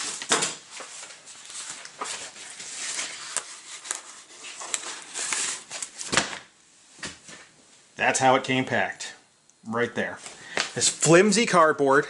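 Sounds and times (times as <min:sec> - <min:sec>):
paper and cardboard rustling: 0:00.0 - 0:07.5.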